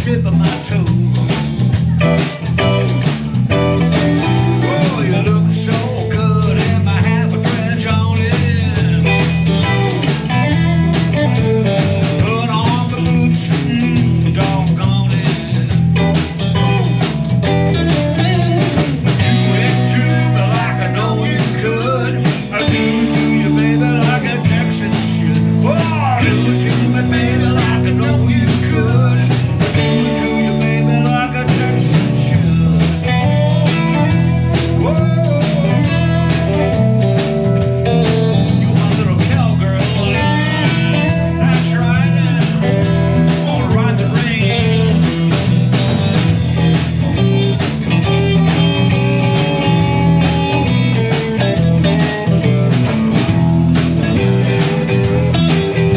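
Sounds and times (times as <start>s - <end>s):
blues-rock band playing: 0.0s - 55.9s
lead guitar bending notes: 0.0s - 55.9s.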